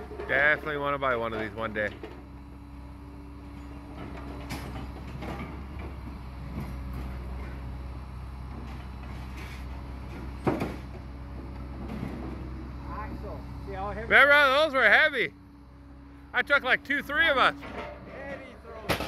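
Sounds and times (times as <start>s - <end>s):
excavator diesel engine running: 0.0s - 19.0s
metal clanks: 17.5s - 19.0s.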